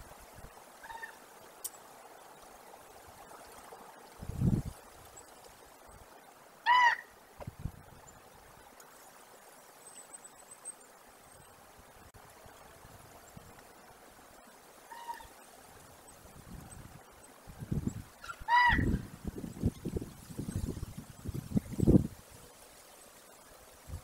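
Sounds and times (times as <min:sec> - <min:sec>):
honking animal calls: 0:06.6 - 0:07.1, 0:18.2 - 0:18.9.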